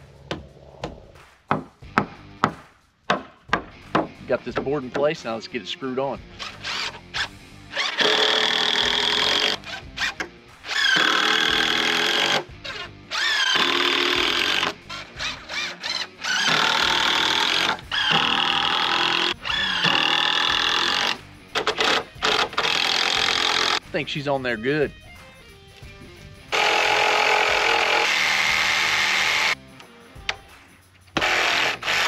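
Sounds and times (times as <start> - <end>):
cordless drill driving screws: 6.4 - 23.8, 26.5 - 29.6, 31.2 - 32.0.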